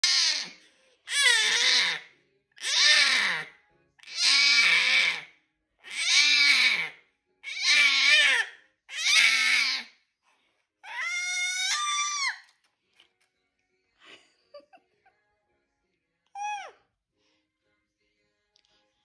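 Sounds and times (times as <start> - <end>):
baby squealing: 0.0 - 0.5, 1.1 - 2.0, 2.6 - 5.2, 5.8 - 9.9, 10.8 - 12.4, 16.3 - 16.8
baby screaming in shrieks: 0.0 - 2.0, 2.6 - 9.9, 10.8 - 12.4, 16.3 - 16.8.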